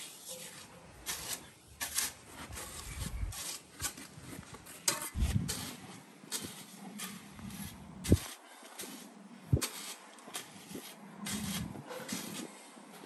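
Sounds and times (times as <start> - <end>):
shovel scraping crushed stone: 0.0 - 13.0
dull low thumps: 5.2 - 5.6.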